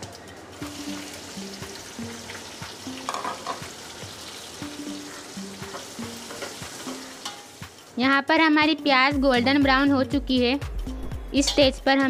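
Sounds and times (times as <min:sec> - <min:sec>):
onions sizzling in hot oil: 0:00.0 - 0:09.1
metal ladle tapping a pot: 0:03.0 - 0:03.6, 0:05.7 - 0:07.5, 0:11.4 - 0:11.8.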